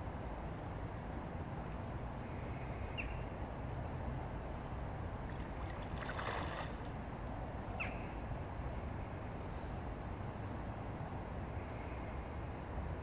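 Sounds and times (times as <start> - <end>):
river water rushing: 5.3 - 7.1.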